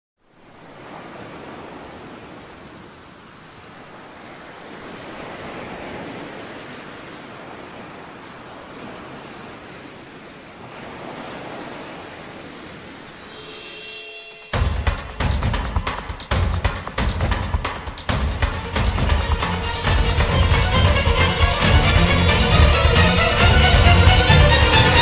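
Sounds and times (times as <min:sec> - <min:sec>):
small waves washing onto sand: 0:00.2 - 0:13.3.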